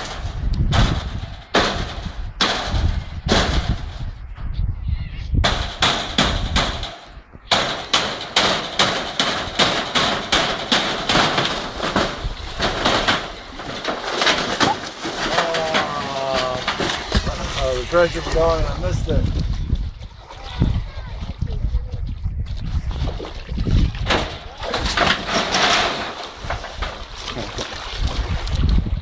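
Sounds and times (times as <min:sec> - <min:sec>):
sharp knocks and cracks: 0:00.0 - 0:04.2, 0:05.4 - 0:18.5, 0:24.0 - 0:28.8.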